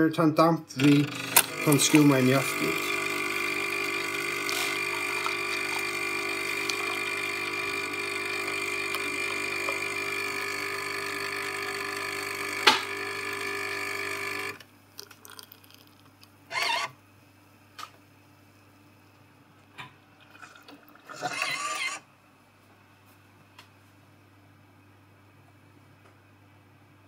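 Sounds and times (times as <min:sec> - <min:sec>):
coffee machine humming: 0:00.8 - 0:17.0, 0:18.9 - 0:22.0.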